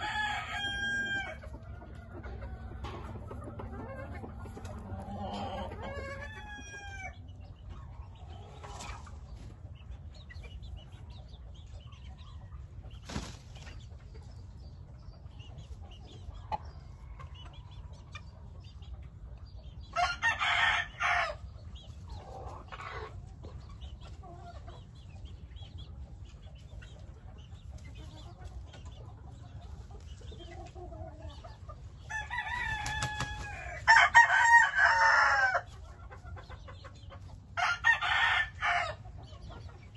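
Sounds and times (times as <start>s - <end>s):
rooster crowing: 0.0s - 1.4s, 32.1s - 35.7s, 37.6s - 39.0s
rooster clucks and calls: 0.0s - 7.4s.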